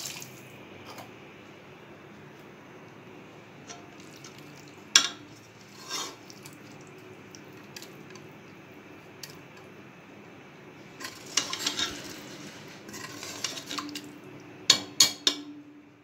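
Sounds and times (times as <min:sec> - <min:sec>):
metal spoon stirring in pot: 0:03.7 - 0:06.8, 0:11.0 - 0:14.2
spoon clanking against pot: 0:05.0 - 0:05.3, 0:14.7 - 0:15.7.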